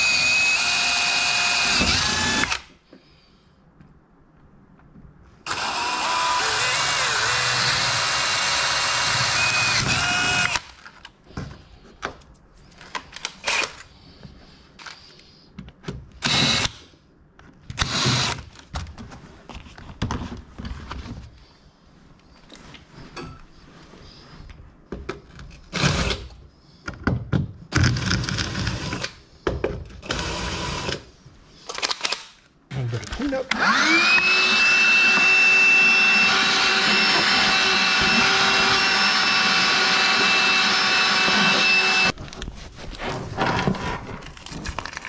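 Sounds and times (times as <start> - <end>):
cordless drill boring into fiberglass: 0.0 - 2.6, 5.5 - 10.6, 16.2 - 16.7, 33.5 - 42.1.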